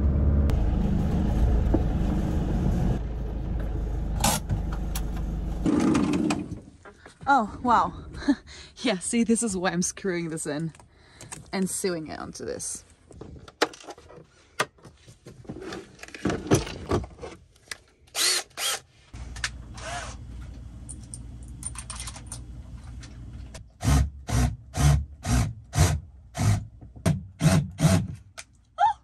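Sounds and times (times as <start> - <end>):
cordless drill bursts: 18.2 - 18.8.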